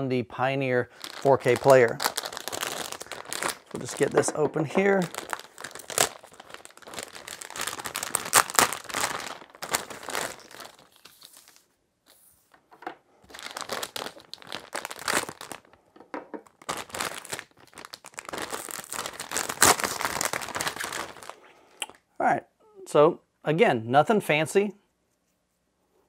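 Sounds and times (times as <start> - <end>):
packaging crinkling and tearing: 0.9 - 11.7, 13.3 - 15.8, 16.4 - 21.4.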